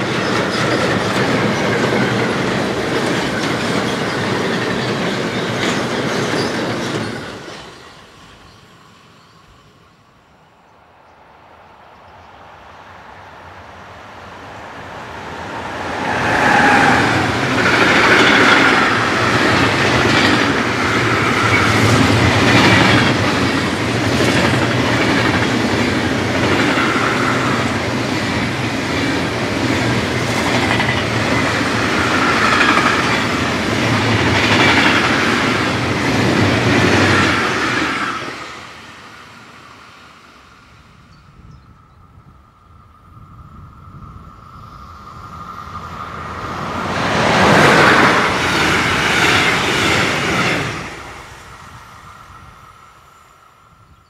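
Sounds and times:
train wheels clattering on rails: 0.0 - 8.5, 15.9 - 38.7, 46.5 - 51.1
freight train rumble: 0.0 - 54.0.

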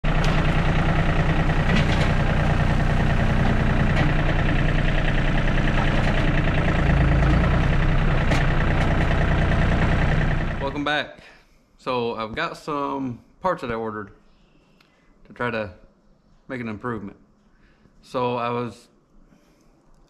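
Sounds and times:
diesel tractor engine under load: 0.0 - 10.9.

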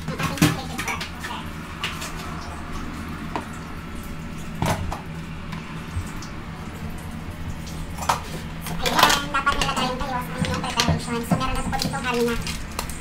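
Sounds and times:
steady low hum: 0.0 - 13.0
kitchen things knocking and clicking: 8.0 - 13.0.

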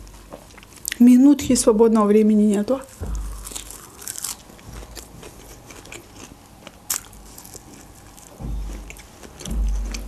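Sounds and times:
dull low thuds: 1.4 - 2.1, 2.9 - 3.8, 8.3 - 10.0
chewing flatbread: 2.9 - 10.0
sharp crunch: 3.0 - 10.0.

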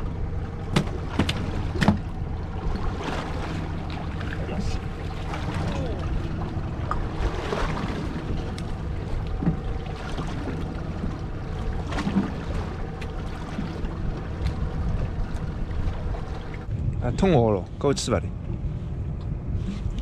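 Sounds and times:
low steady hum: 0.0 - 20.0
sea noise: 0.0 - 20.0
wind on microphone: 13.7 - 20.0.

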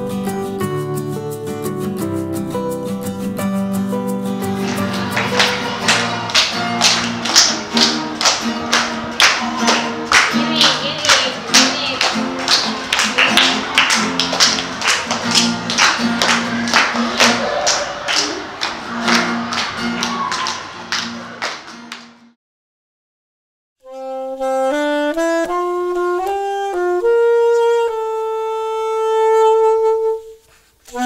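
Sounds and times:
acoustic guitar strumming: 0.0 - 22.3.

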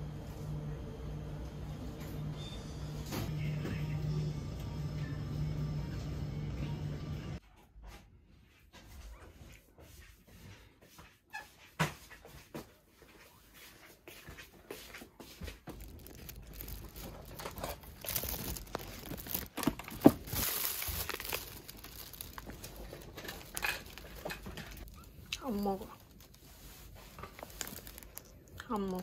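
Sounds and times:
plastic bag and wrappers rustling: 15.4 - 29.0.

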